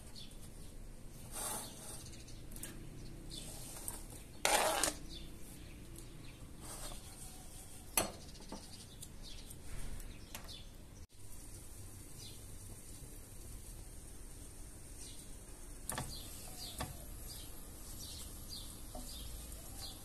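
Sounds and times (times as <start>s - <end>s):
soft sizzling: 11.2s - 20.0s.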